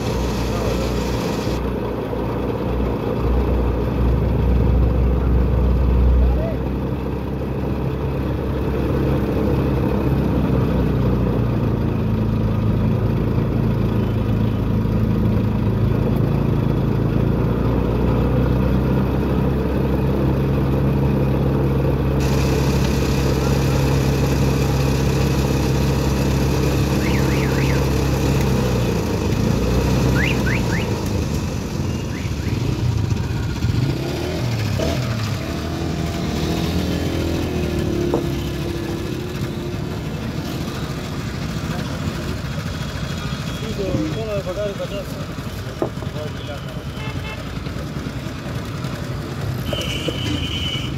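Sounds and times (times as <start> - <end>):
juice crusher machine humming: 0.0 - 1.6, 22.2 - 29.4.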